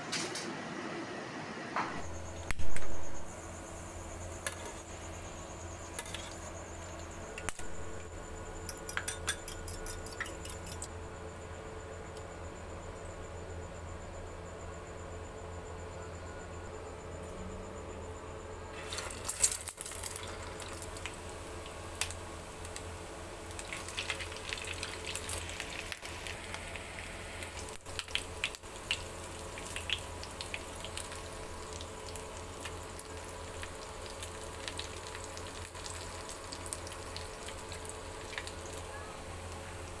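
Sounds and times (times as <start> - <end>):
low steady hum: 0.0 - 40.0
frying sizzle with crackles: 1.9 - 11.0, 18.7 - 40.0.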